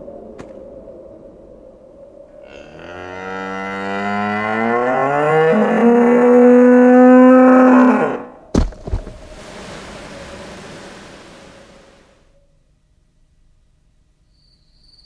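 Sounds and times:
cow mooing: 0:02.4 - 0:08.4
sharp knock: 0:08.6 - 0:09.8.

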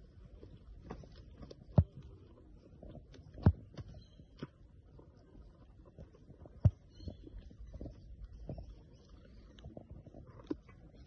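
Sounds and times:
wombat chewing corn: 0:04.6 - 0:11.0.

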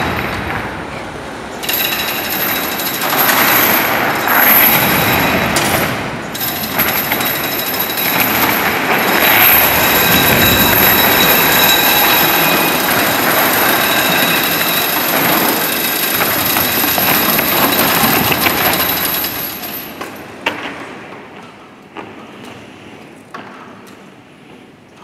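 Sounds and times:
heavy chains rattling and grinding: 0:01.6 - 0:20.4
metal clanks: 0:01.6 - 0:20.6.

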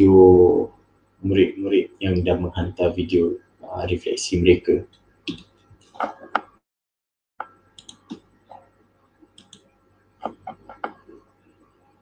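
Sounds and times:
mouse and keyboard clicks: 0:09.4 - 0:09.6.

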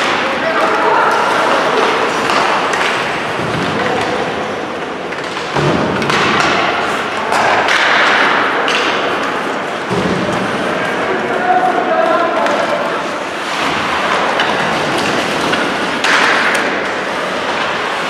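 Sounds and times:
skates scraping ice: 0:00.0 - 0:18.0
sticks and puck knocking: 0:01.5 - 0:04.4, 0:05.1 - 0:10.4, 0:13.4 - 0:17.8.

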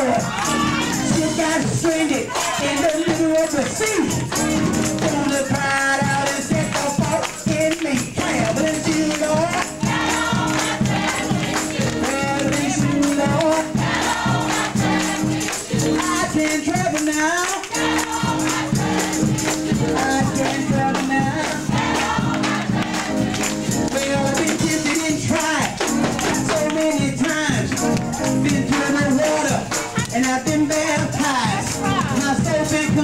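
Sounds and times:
group singing gospel music: 0:00.0 - 0:33.0
hand-clapping: 0:01.4 - 0:33.0.

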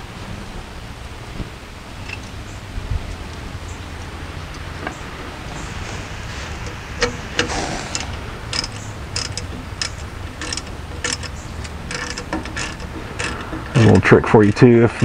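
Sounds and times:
socket ratchet clicking: 0:06.6 - 0:13.8.

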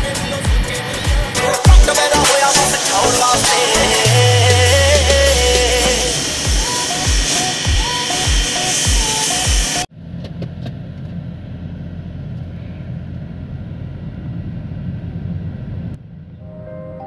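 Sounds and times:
music: 0:00.0 - 0:09.9, 0:16.4 - 0:17.0
road and tyre rumble in car: 0:09.9 - 0:16.0.

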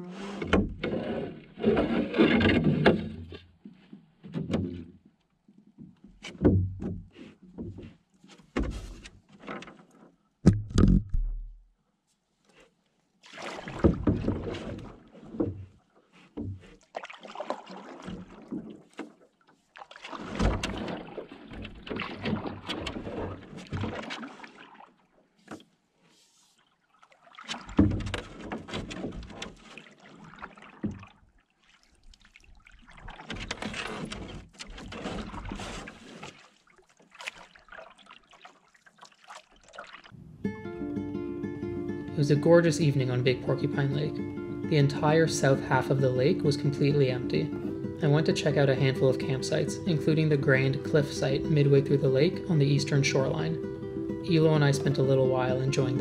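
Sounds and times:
paddle splashing in water: 0:00.0 - 0:04.9, 0:06.1 - 0:11.3, 0:12.6 - 0:40.2
knocks on canoe hull: 0:06.2 - 0:07.9, 0:10.4 - 0:11.5, 0:13.8 - 0:15.7, 0:16.3 - 0:16.8, 0:27.6 - 0:29.5.

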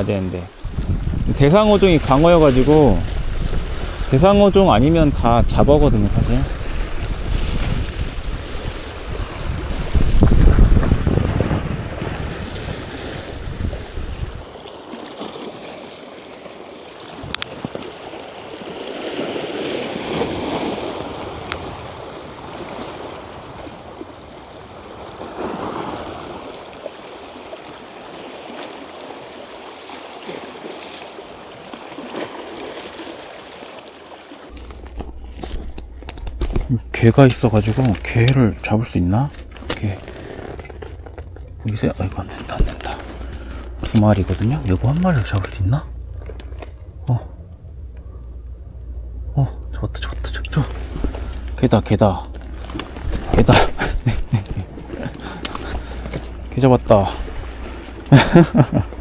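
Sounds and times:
wind rumbling on microphone: 0:00.5 - 0:14.5, 0:34.5 - 0:59.0
waves washing against rocks: 0:00.7 - 0:35.6.

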